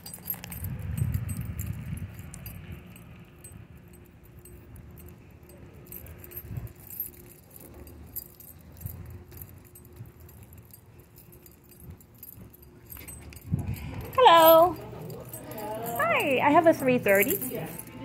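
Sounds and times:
light metallic jingling: 0:00.0 - 0:18.0.

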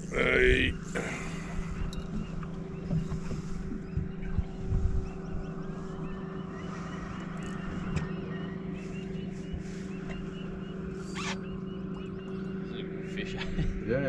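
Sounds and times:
boat motor humming: 0:00.0 - 0:14.0
low thumps: 0:01.6 - 0:06.3.

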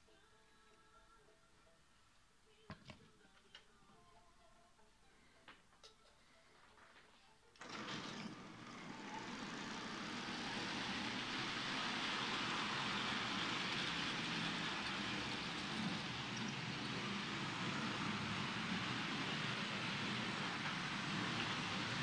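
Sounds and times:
model trains rolling rumble: 0:07.6 - 0:22.0.

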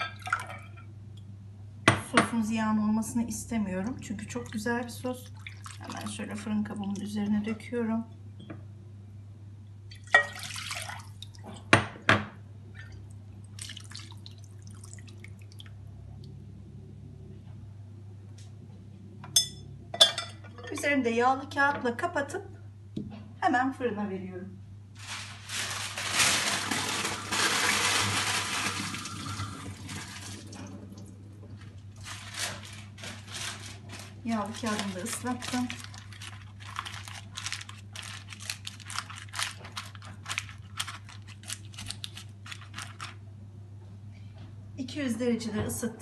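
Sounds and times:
small drips: 0:03.9 - 0:07.2, 0:09.9 - 0:11.6, 0:12.7 - 0:16.4
sauce splashing: 0:04.5 - 0:06.2, 0:13.4 - 0:15.8
water running from a tap: 0:26.6 - 0:30.6.

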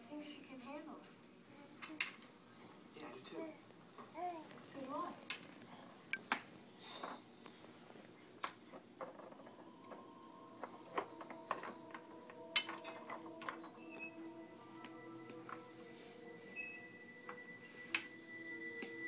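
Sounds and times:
soft background music: 0:07.8 - 0:19.0.

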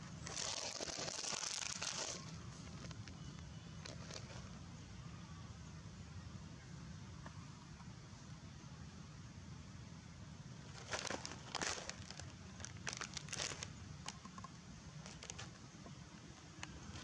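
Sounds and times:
dry leaves crackling: 0:00.0 - 0:04.6, 0:10.6 - 0:14.2, 0:15.0 - 0:15.6.

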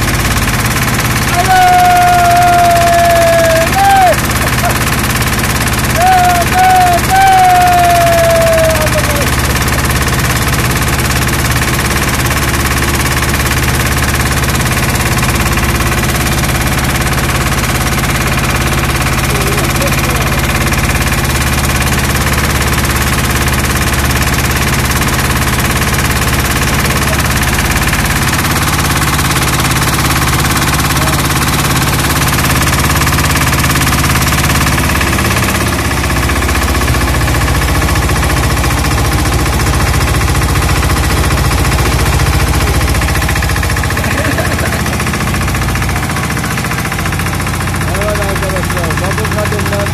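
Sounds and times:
boat engine running: 0:00.0 - 0:49.9
water washing along hull: 0:02.1 - 0:07.3.

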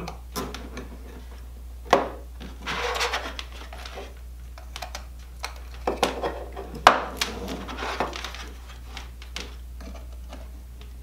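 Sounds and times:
low steady hum: 0:00.0 - 0:11.0
cables rubbing and rustling: 0:02.4 - 0:11.0.

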